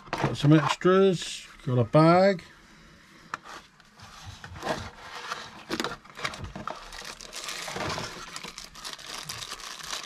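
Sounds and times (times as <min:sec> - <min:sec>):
plastic packaging crinkling: 0:05.7 - 0:10.0.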